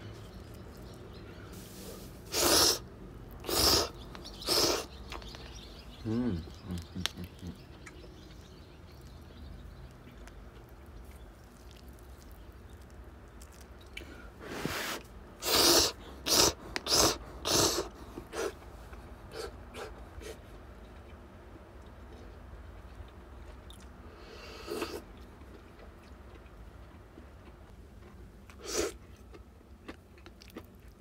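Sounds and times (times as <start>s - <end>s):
person slurping noodles: 2.2s - 2.8s, 3.4s - 4.9s, 14.4s - 18.5s.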